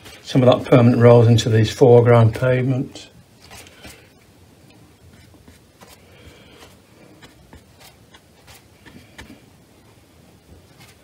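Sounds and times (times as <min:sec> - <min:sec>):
brush scratching on paper: 0:05.1 - 0:10.0, 0:10.7 - 0:11.0.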